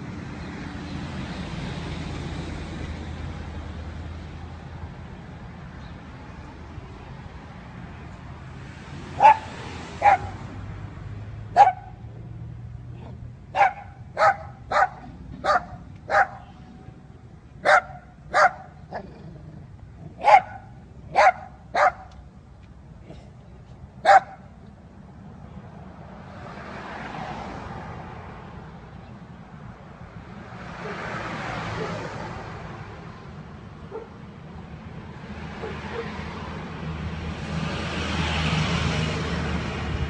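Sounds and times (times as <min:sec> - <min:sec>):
dog barking: 0:09.2 - 0:10.4, 0:11.6 - 0:12.0, 0:13.0 - 0:16.6, 0:17.6 - 0:19.1, 0:20.2 - 0:22.1, 0:24.0 - 0:24.5, 0:31.8 - 0:32.1, 0:33.9 - 0:34.2, 0:35.6 - 0:36.2.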